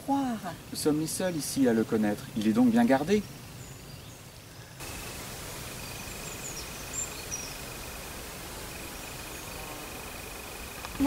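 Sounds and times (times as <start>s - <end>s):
steady hiss: 0.0s - 11.0s
bird chirps: 5.6s - 10.6s.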